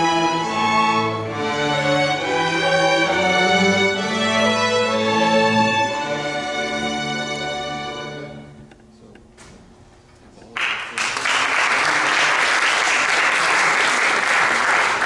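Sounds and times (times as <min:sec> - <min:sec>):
string orchestra chord: 0:00.0 - 0:08.6
audience applause: 0:10.6 - 0:15.0.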